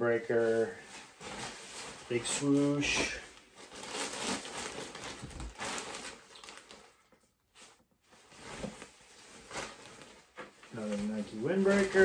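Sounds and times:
fabric rustling: 0.2s - 12.0s
plastic bag crinkling: 0.3s - 12.0s.

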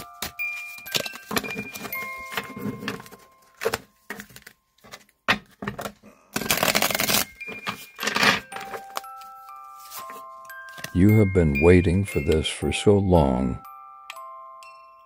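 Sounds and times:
soft chiming music: 0.0s - 4.7s, 6.6s - 15.0s
cards shuffling and snapping: 0.0s - 5.1s, 5.7s - 11.0s
cards rustling on table: 0.0s - 11.0s.

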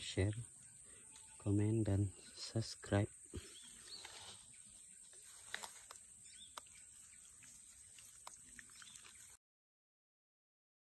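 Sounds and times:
high insect drone: 0.0s - 9.3s.

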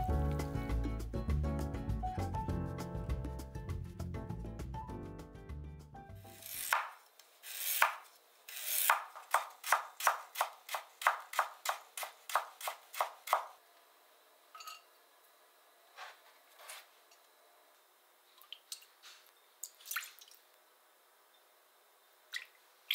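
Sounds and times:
background music: 0.0s - 6.7s
knife chopping on cutting board: 6.6s - 7.0s, 7.7s - 8.1s, 8.8s - 13.5s.

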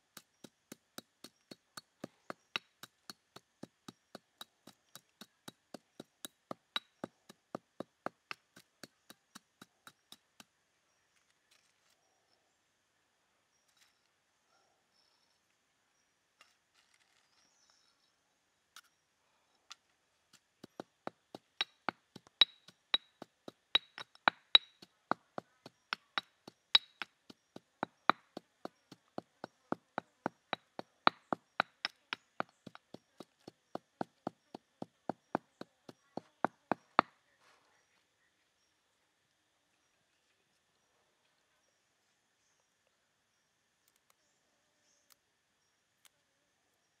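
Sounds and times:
stone pestle pounding in mortar: 0.0s - 10.4s, 20.4s - 37.1s.

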